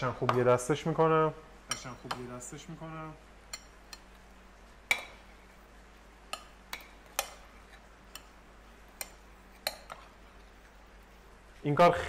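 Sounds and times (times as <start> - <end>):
metal spoon clinking on bowl: 3.5 - 4.1.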